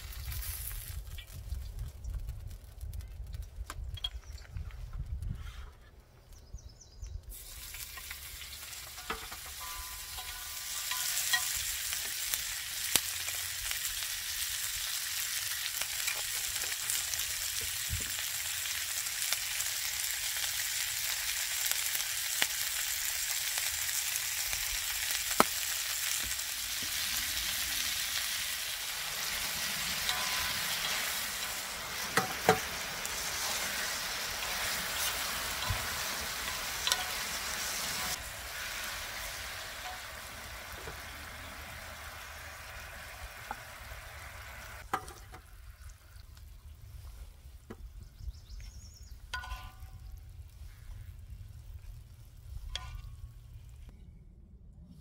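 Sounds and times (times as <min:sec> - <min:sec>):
vegetables sizzling on griddle: 0:00.0 - 0:01.5, 0:07.3 - 0:45.7.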